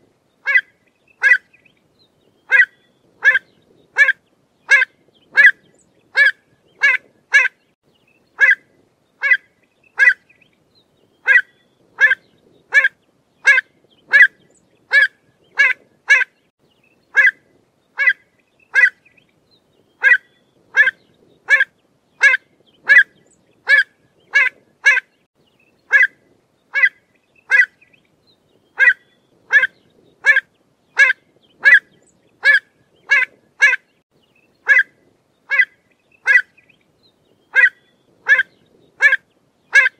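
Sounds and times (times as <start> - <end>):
bird calling sharp notes: 2.5 - 7.6, 11.2 - 16.4, 20.0 - 25.1, 28.8 - 30.4, 37.5 - 39.9.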